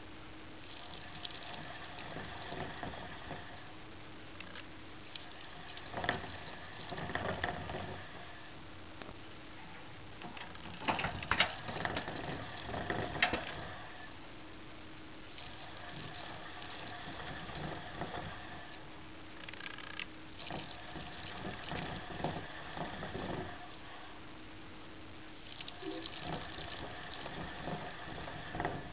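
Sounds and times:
hamster wheel rattling and clicking: 0.6 - 3.6, 5.0 - 8.0, 10.5 - 13.7, 15.3 - 18.5, 19.5 - 23.7, 25.4 - 28.9.

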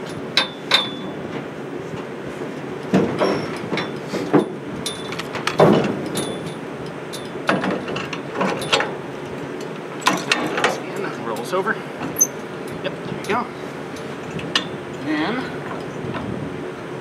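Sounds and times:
metal knocks and clunks: 2.9 - 6.6.

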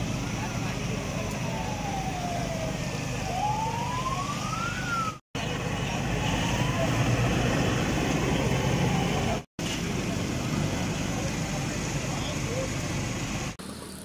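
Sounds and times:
street traffic noise: 0.0 - 14.0
siren wailing: 1.2 - 5.2, 6.0 - 9.4.

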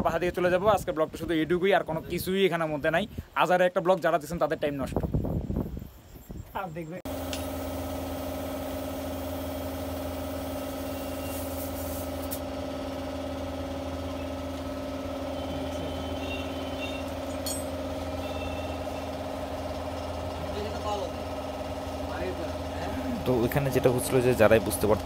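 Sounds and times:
motor running steadily: 7.1 - 25.0.

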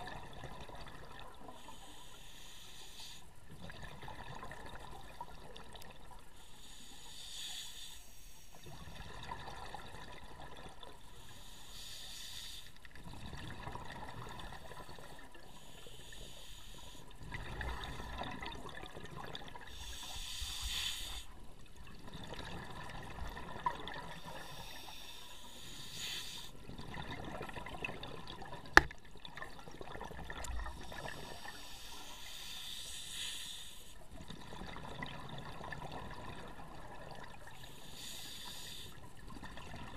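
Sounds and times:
bubbling exhaust underwater: 0.0 - 7.6, 8.6 - 12.1, 12.8 - 39.9
regulator hiss: 19.7 - 21.3.

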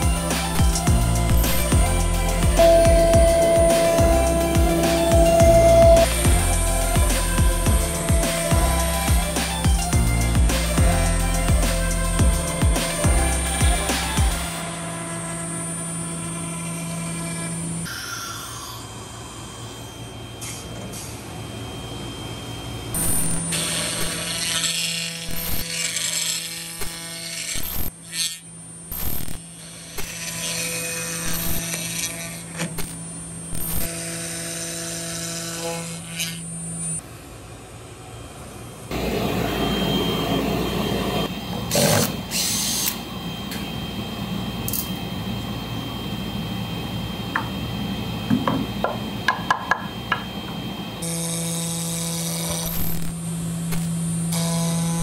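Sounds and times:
router spindle motor whine: 0.0 - 37.0, 38.0 - 55.0
noisy hiss with high whistle: 2.3 - 6.6, 17.8 - 23.4, 38.9 - 41.4.

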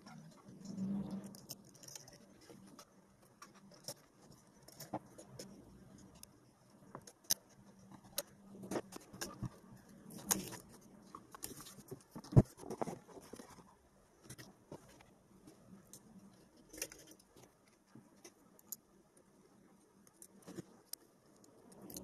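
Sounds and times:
small metallic clicks and rattles: 0.0 - 13.6, 15.8 - 18.9.

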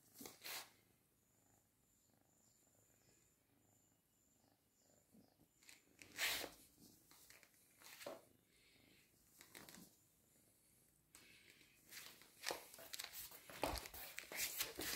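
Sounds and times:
kitten purring: 0.3 - 6.8.

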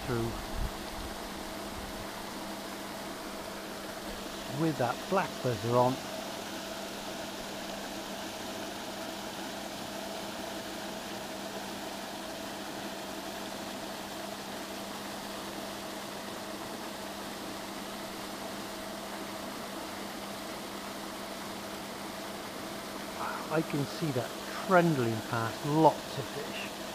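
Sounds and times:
aerator mechanical hum: 0.0 - 26.9
even hiss: 4.0 - 6.2, 22.9 - 26.9.

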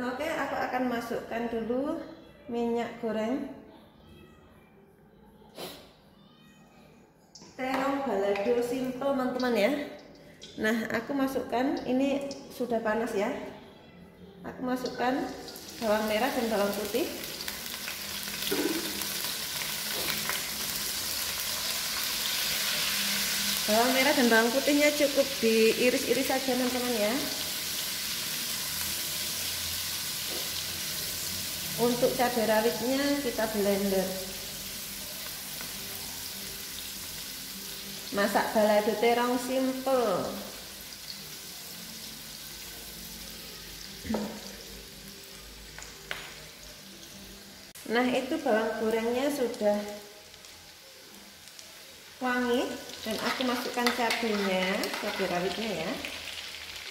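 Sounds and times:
food sizzling in oil: 14.8 - 56.9.

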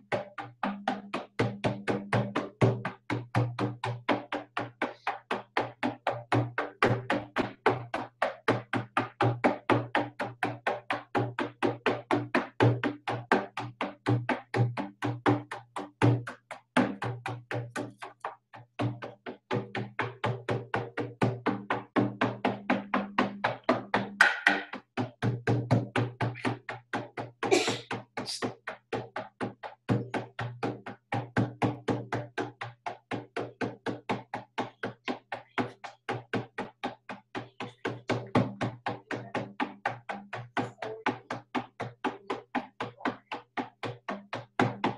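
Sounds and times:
frame drum beating: 18.8 - 28.2, 28.9 - 44.9.

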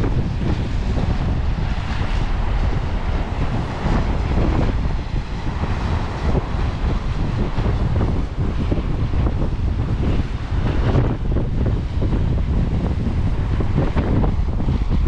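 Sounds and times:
ocean surf washing: 0.0 - 15.0
strong wind buffeting microphone: 0.0 - 15.0.

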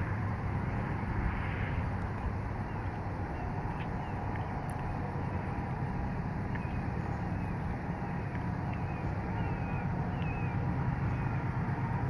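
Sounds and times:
distant locomotive rumble: 0.0 - 12.0
bird chirps: 2.6 - 5.5, 6.4 - 11.4.

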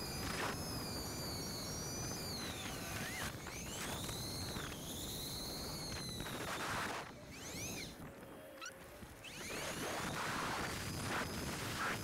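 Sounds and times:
electric hub motor whining: 0.0 - 12.0.

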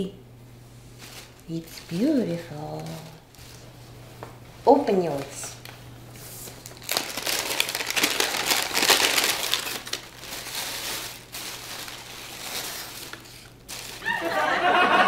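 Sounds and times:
wrapping paper crinkling: 0.9 - 3.7, 6.2 - 14.5.

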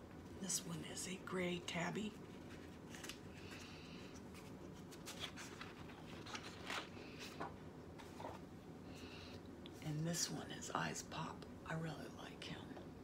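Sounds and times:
pages turning with soft ticks: 2.0 - 8.5
paper rustling: 2.1 - 8.5.

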